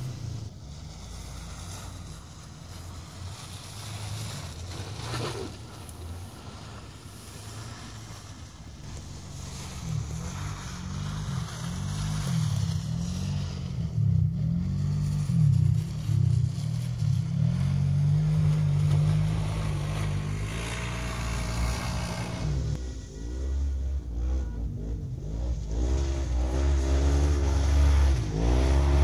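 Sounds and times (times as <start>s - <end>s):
off-road vehicle engine revving: 0.0s - 29.0s.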